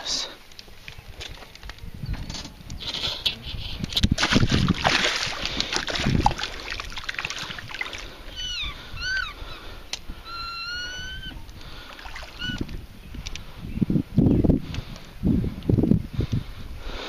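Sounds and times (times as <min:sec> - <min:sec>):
fish splashing in water: 0:04.1 - 0:08.7, 0:11.7 - 0:12.7
bird calls: 0:07.3 - 0:14.5.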